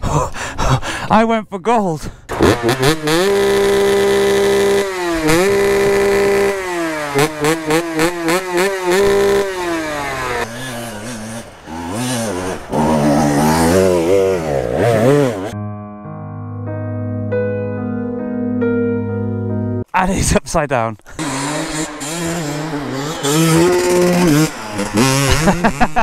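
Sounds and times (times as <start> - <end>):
dirt bike engine revving: 2.3 - 15.6, 21.2 - 26.0.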